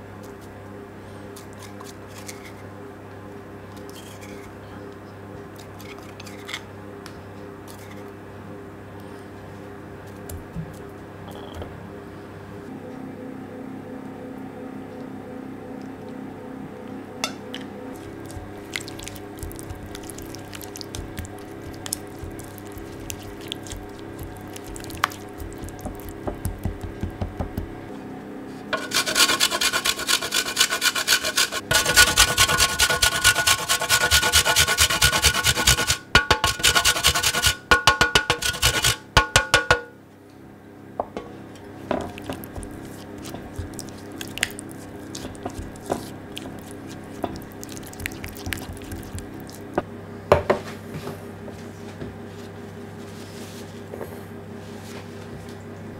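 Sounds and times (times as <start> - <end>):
spatula scraping glass bowl: 18.0 - 26.8, 28.8 - 37.6, 38.3 - 39.0, 42.1 - 49.8
grating on metal box grater: 18.0 - 27.1, 28.8 - 37.7, 38.3 - 39.0, 42.2 - 49.4.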